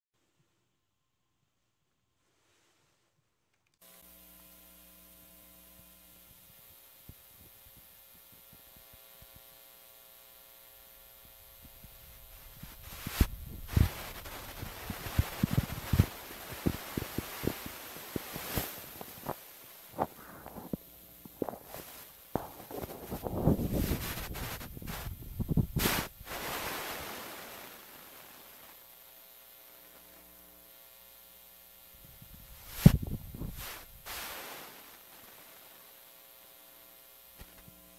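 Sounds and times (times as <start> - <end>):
faint mains hum: 0.2 - 37.9
static hiss: 3.8 - 37.9
sharp pops and thumps: 12.6 - 26.1, 32.7 - 33.6.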